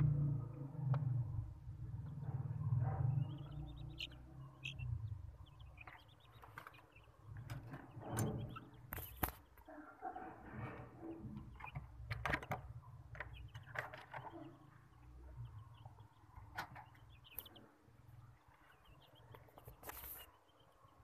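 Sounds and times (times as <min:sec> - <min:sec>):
chicks peeping: 0:00.6 - 0:21.0
sharp clicks and knocks: 0:11.3 - 0:14.4.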